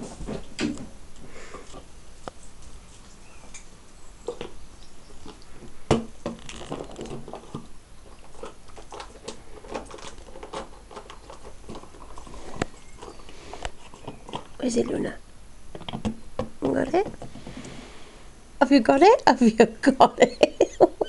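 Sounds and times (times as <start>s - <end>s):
dogs scuffling and mouthing: 6.6s - 15.1s
claws clicking on tiled floor: 8.3s - 14.6s.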